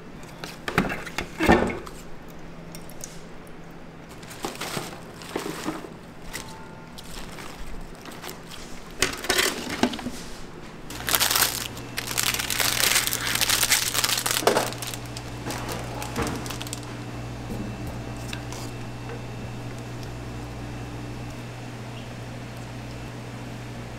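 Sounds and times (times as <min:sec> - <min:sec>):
plastic film crinkling: 0:04.1 - 0:10.1, 0:10.9 - 0:17.0
low hum: 0:10.7 - 0:23.9.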